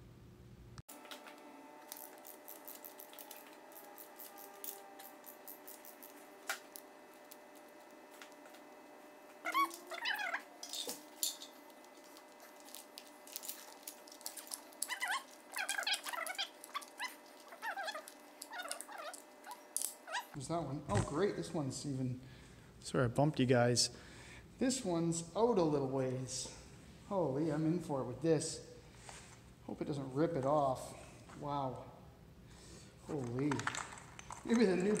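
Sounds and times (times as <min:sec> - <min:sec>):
high squeaks bending in pitch: 0:09.4 - 0:11.0.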